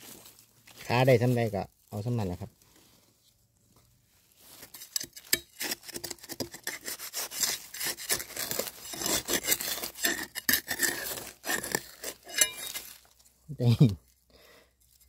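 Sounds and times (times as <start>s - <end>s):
knife scraping dry soil: 4.2s - 13.4s, 14.0s - 15.0s.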